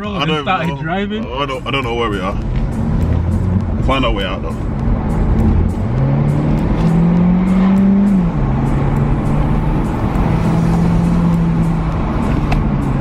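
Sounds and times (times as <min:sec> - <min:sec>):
car engine accelerating: 0:01.4 - 0:13.0.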